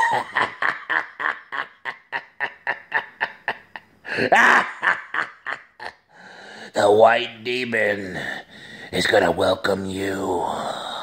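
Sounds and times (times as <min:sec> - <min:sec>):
man laughing: 0:00.0 - 0:06.0.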